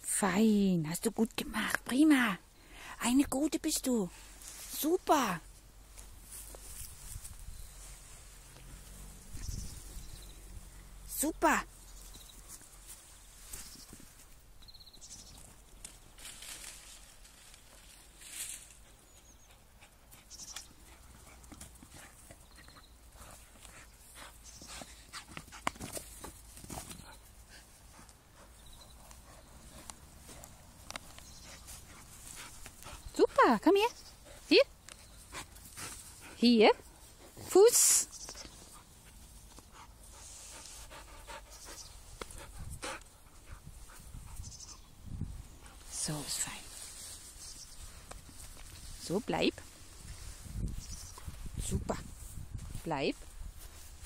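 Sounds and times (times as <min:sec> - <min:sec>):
dog panting softly: 0:38.4 - 0:44.6.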